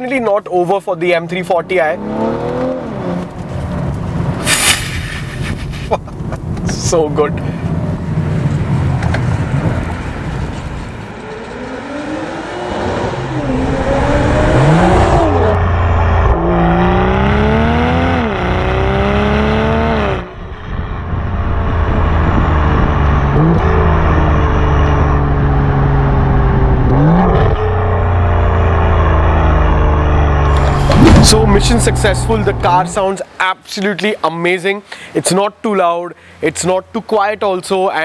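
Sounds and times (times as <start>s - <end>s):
car engine accelerating through gears: 1.7s - 4.5s, 7.3s - 33.0s.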